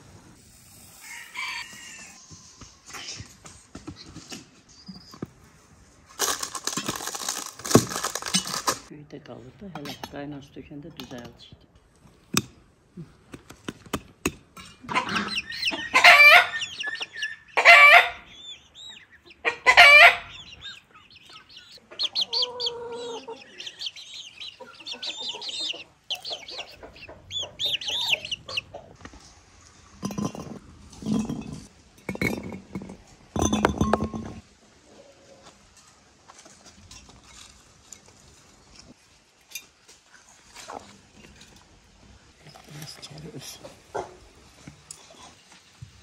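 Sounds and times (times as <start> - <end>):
chickens clucking: 14.6 - 31.8, 39.9 - 46.0
chicken loud calls: 14.9 - 29.0.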